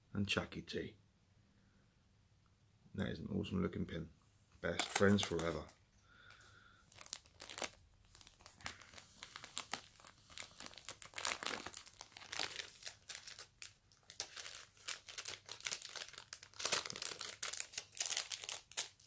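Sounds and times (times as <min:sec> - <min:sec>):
crinkly packaging rustling: 0:04.6 - 0:19.0.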